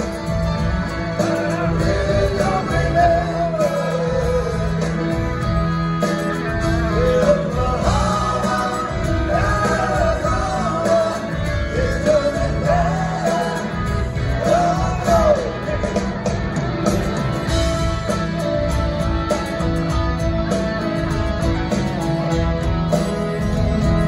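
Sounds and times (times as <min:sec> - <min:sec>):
live country rock band playing: 0:00.0 - 0:24.0
man singing lead vocal: 0:01.1 - 0:05.6, 0:06.4 - 0:16.1.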